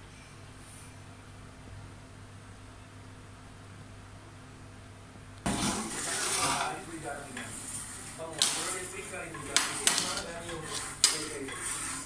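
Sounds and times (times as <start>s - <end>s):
metal spoon scraping rice in pot: 5.5s - 12.0s.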